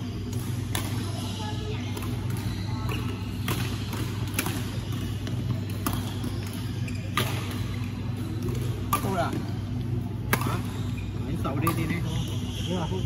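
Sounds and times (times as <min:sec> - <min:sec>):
steady low hum: 0:00.0 - 0:13.0
rackets smacking shuttlecocks: 0:00.1 - 0:12.4.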